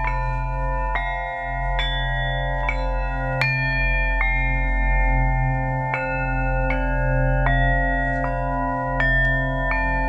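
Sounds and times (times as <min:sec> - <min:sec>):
singing bowls ringing: 0:00.0 - 0:10.0.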